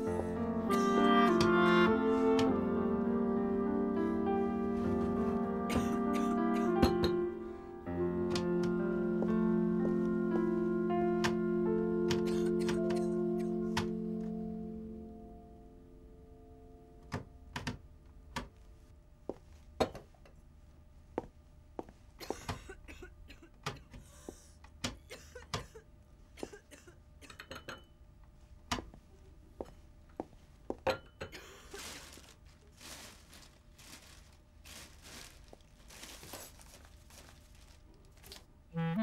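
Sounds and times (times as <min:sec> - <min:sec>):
rustling: 0:31.7 - 0:38.5.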